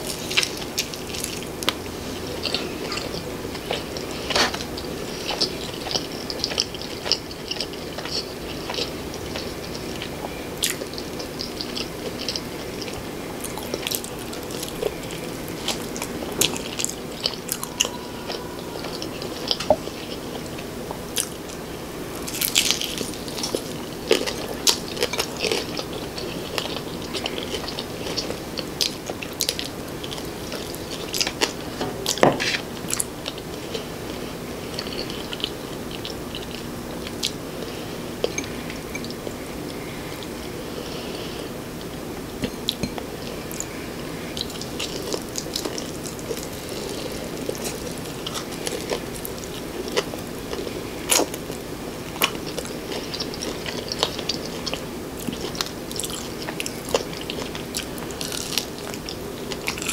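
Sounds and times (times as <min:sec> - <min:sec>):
chewing with wet mouth sounds: 0:00.0 - 0:59.9
crunchy bites of fried chicken: 0:52.2 - 0:59.9.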